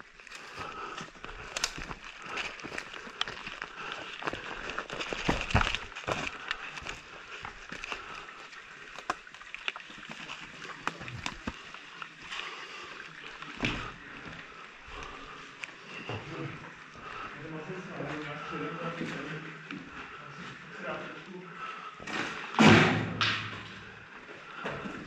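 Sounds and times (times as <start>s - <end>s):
clothing and gear rustling: 0.0s - 12.6s.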